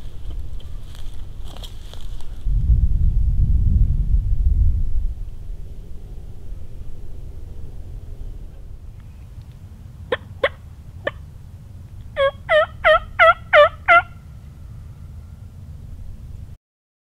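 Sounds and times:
turkey call yelps: 10.1 - 11.2, 12.2 - 14.3.

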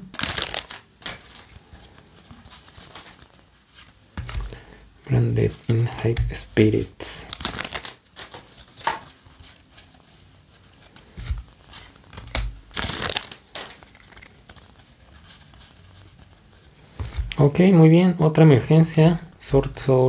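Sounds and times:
cards being flipped through: 0.1 - 4.7, 6.1 - 17.5.

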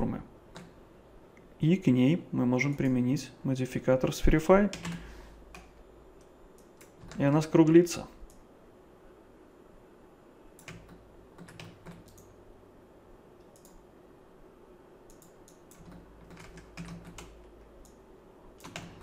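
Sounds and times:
faint computer mouse clicks: 13.4 - 13.8, 15.1 - 16.0.

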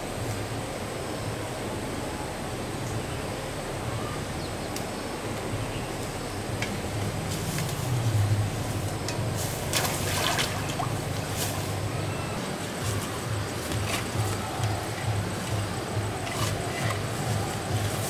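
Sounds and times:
water pump engine hum: 0.0 - 18.0
water splashing: 9.3 - 12.2.

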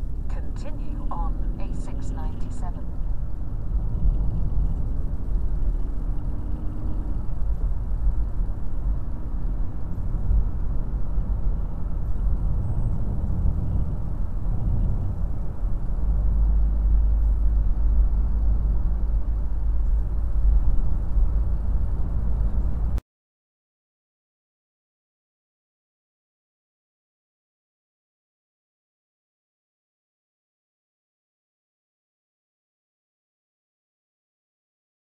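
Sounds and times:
car road noise from inside: 0.0 - 23.0.

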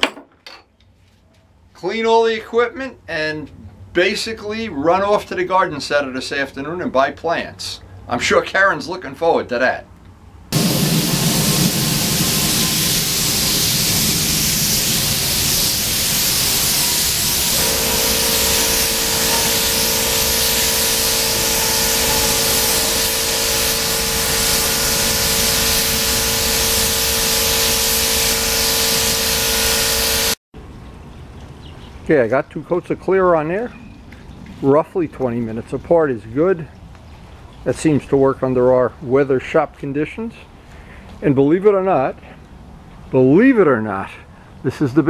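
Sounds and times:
spray gun hissing: 10.6 - 30.4
steady droning tone: 17.4 - 30.3.

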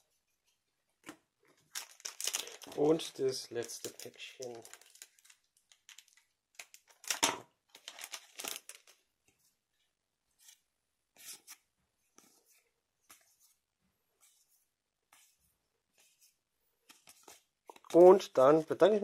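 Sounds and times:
wrapper ripping open: 1.7 - 9.0.

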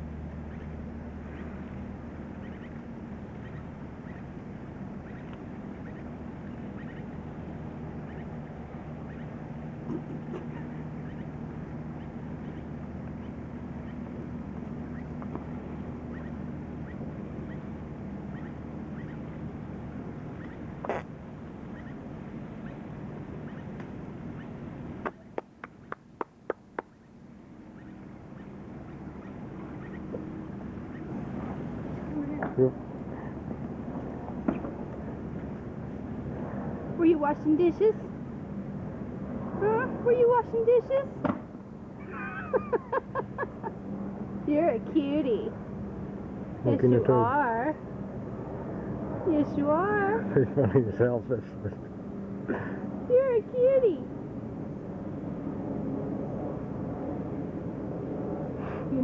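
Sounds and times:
low background hum: 0.0 - 59.0
steady background noise: 0.0 - 59.0
faint bird chirps: 2.4 - 2.8, 3.4 - 4.3, 5.0 - 7.1, 7.9 - 14.1, 16.0 - 19.4, 20.4 - 21.1, 21.7 - 22.0, 23.4 - 26.0, 26.8 - 31.1.

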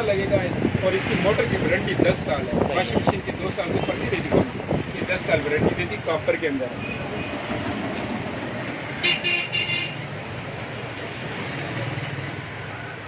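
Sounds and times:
road traffic: 0.0 - 13.0
vehicle horn: 9.0 - 10.0.

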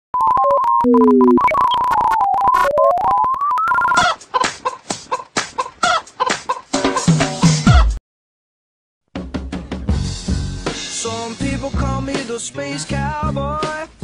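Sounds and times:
glitchy synthesizer tone: 0.2 - 4.0
crackling cut-ups: 0.2 - 4.5.

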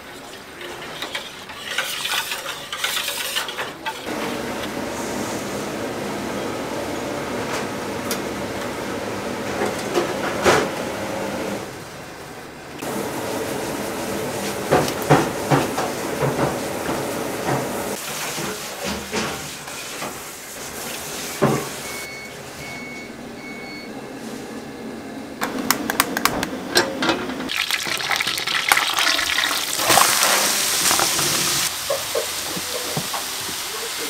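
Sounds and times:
kitchen clatter: 0.0 - 4.4, 14.4 - 22.0, 25.5 - 33.6.

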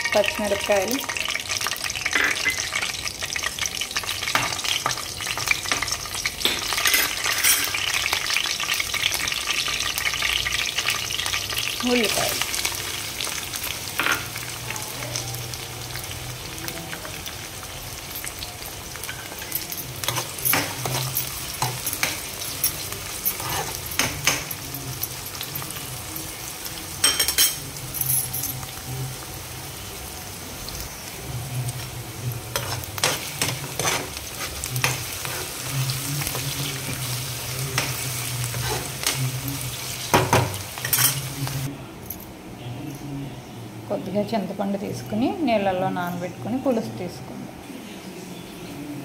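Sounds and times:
onions sizzling in hot oil: 0.0 - 41.7
spatula scraping pan: 23.3 - 24.0, 32.5 - 35.6, 38.5 - 39.1.

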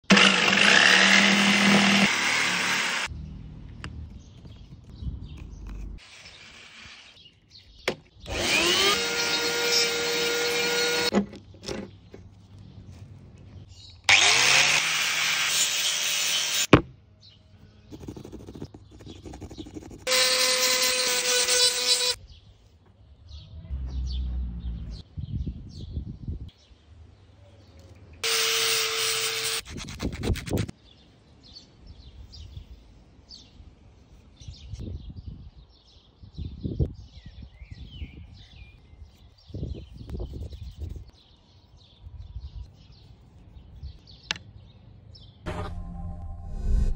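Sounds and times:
jigsaw cutting wood: 0.0 - 3.1, 8.3 - 11.2, 14.1 - 16.7
rotary tool whining and grinding: 0.0 - 3.1, 8.2 - 11.8, 14.1 - 16.7, 18.0 - 22.2, 28.2 - 30.5.

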